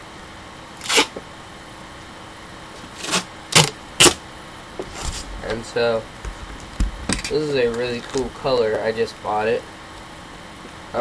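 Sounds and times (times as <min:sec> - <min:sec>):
duct tape ripping off roll: 0:00.8 - 0:01.2, 0:02.9 - 0:04.2.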